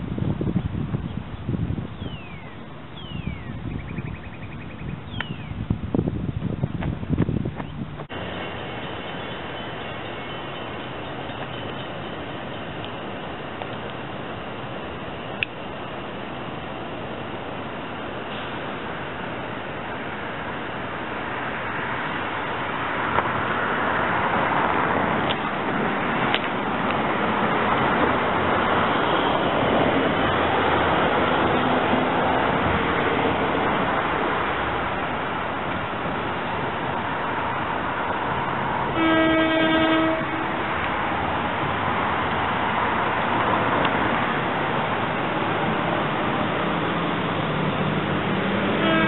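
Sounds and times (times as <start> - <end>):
steady noise: 5.7 - 39.1
electric train running: 8.1 - 20.1
train horn: 38.9 - 40.8, 48.7 - 49.0.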